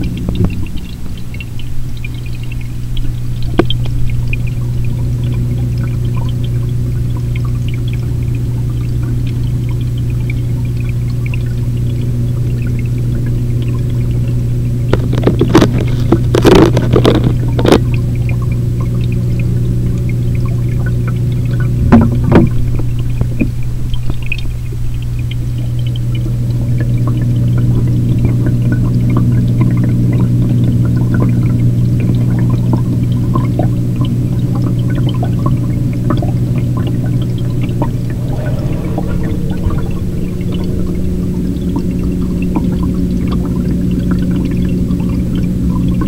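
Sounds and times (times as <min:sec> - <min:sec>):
aquarium filter humming: 0:00.0 - 0:46.0
water pouring and trickling: 0:00.0 - 0:46.0.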